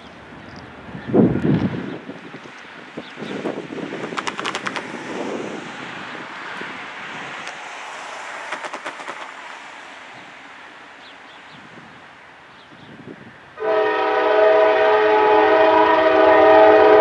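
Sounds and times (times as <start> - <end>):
wind buffeting microphone: 0.1 - 13.6
car passing: 3.5 - 12.6
rapid clicking: 4.0 - 5.0, 8.5 - 9.4.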